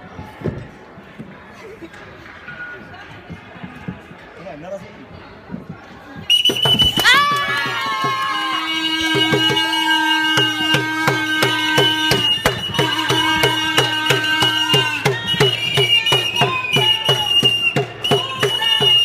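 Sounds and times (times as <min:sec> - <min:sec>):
whistle high tone: 0:06.3 - 0:07.5, 0:08.4 - 0:19.0
plastic horn blowing: 0:08.4 - 0:19.0.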